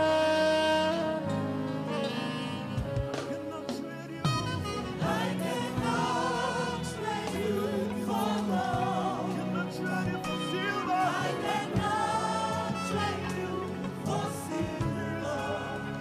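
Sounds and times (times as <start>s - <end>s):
gospel band playing: 0.0s - 16.0s
choir singing: 4.4s - 16.0s.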